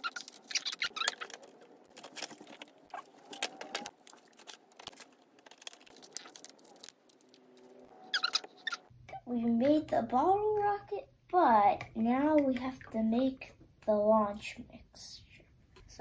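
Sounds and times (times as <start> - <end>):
plastic sheet crinkling: 0.0 - 7.8.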